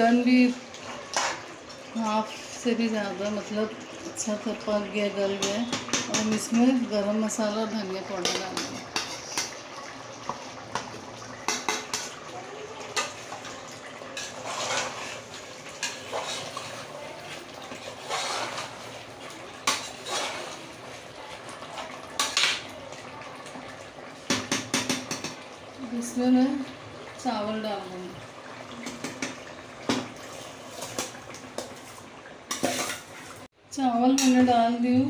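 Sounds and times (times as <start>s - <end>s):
ladle scraping and knocking pot: 0.9s - 1.5s, 8.2s - 9.6s, 14.1s - 19.0s, 19.6s - 20.6s.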